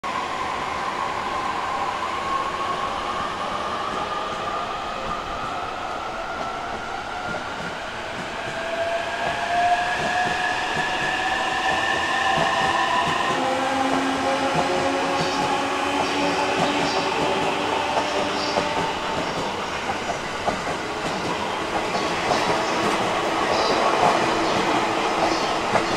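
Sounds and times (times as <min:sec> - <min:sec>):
train rumbling on rails: 0:00.0 - 0:25.9.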